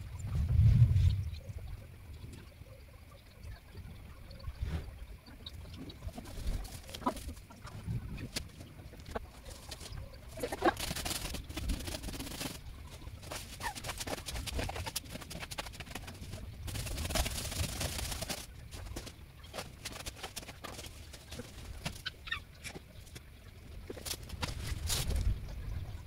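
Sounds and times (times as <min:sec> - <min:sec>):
bird calls: 0:01.0 - 0:16.4, 0:18.2 - 0:26.0
rake scraping dirt and leaves: 0:09.4 - 0:22.8, 0:23.9 - 0:25.3.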